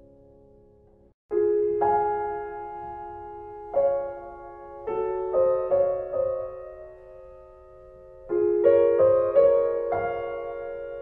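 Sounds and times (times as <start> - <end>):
slow gentle piano music: 0.0 - 11.0.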